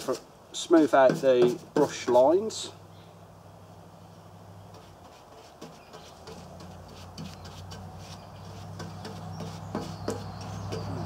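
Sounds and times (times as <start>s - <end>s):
paintbrush dabbing on steel lid: 4.7s - 11.0s
birds chirping: 5.6s - 11.0s.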